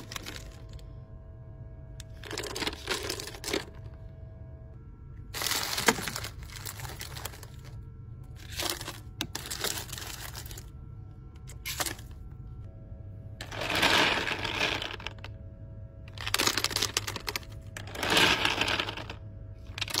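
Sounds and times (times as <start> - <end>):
candies clattering into a cup: 0.0 - 0.8, 2.0 - 3.8, 5.4 - 7.8, 8.4 - 10.7, 11.5 - 12.2, 13.4 - 15.3, 16.1 - 20.0
steady low hum: 0.0 - 20.0.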